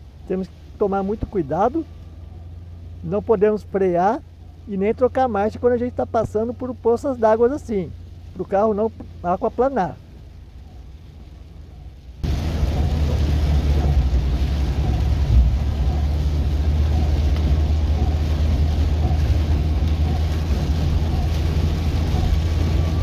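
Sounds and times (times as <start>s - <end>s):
car engine and road rumble: 0.0s - 23.0s
tyres hissing on wet road: 0.0s - 23.0s.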